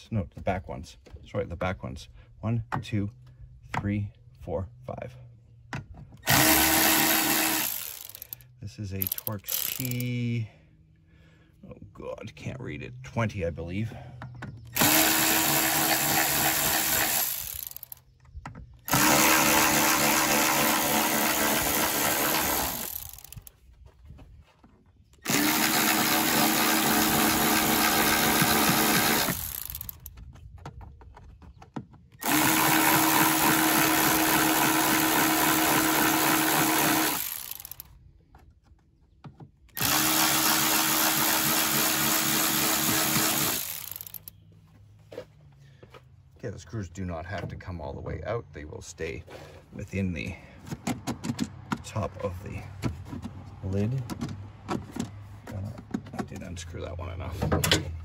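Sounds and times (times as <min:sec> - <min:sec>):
electric ratchet running: 0:06.2 - 0:08.4, 0:09.0 - 0:10.1, 0:14.8 - 0:18.0, 0:18.9 - 0:23.5, 0:25.2 - 0:30.1, 0:32.2 - 0:37.9, 0:39.8 - 0:44.3.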